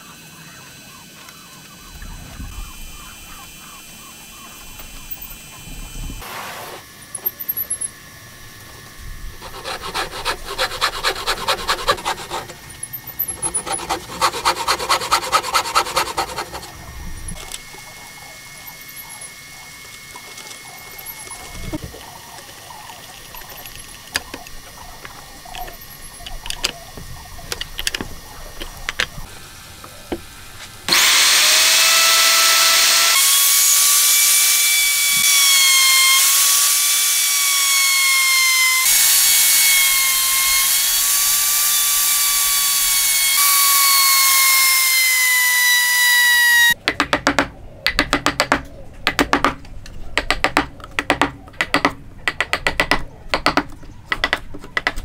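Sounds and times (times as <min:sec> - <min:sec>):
router motor whining: 0:00.0 - 0:06.2, 0:06.8 - 0:46.8
metal parts clicking: 0:27.5 - 0:29.1.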